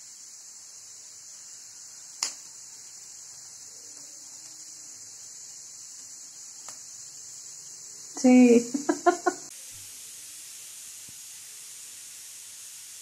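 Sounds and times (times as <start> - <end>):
steady high-pitched hiss: 0.0 - 13.0
sharp click: 2.2 - 2.5.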